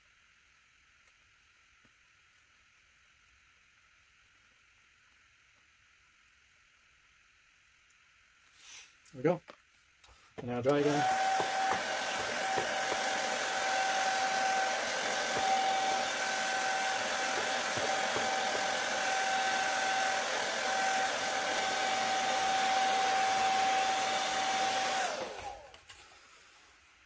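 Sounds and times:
hair dryer running: 10.4 - 26.6.

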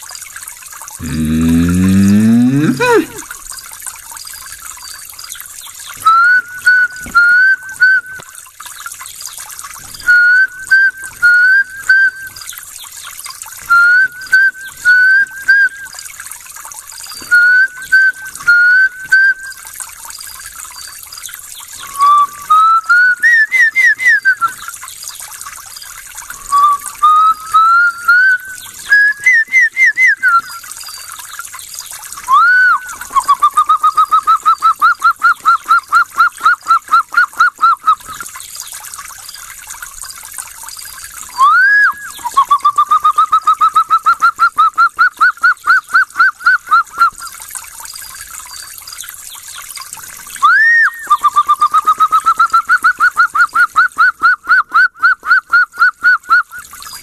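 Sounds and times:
man whistling bird calls: 1.0 - 3.2, 6.0 - 8.3, 9.9 - 12.5, 13.6 - 16.0, 17.2 - 19.7, 21.8 - 24.7, 26.2 - 31.2, 32.2 - 38.3, 41.3 - 47.4, 50.3 - 57.0.

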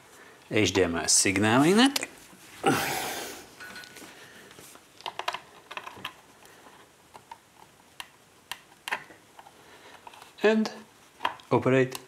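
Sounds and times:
hands clicking on plastic: 7.1 - 12.0.

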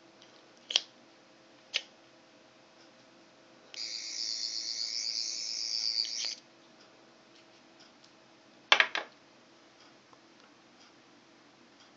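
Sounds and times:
high electronic whine: 3.8 - 6.4.

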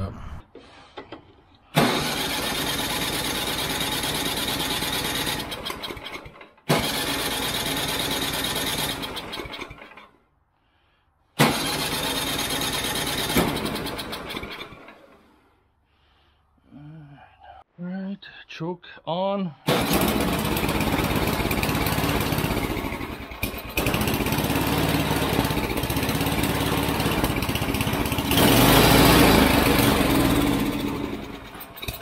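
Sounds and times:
snowblower engine starting and dying: 1.7 - 10.2, 11.4 - 15.6, 19.7 - 32.0.

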